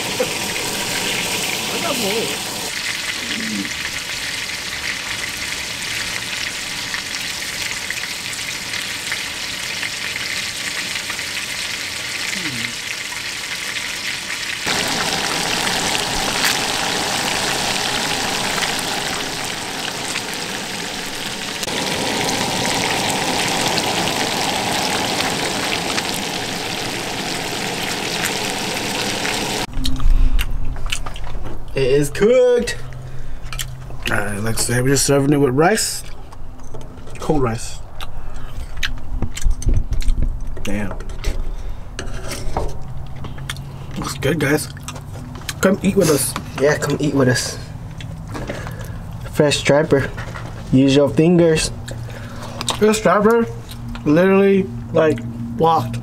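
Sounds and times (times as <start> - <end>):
fish sizzling in hot oil: 0.0 - 29.7.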